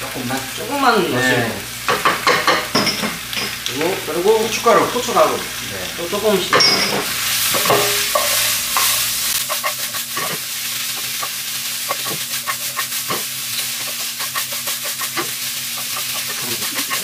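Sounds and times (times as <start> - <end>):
food sizzling in a wok: 0.0 - 17.0
ladle scraping a wok: 6.6 - 17.0.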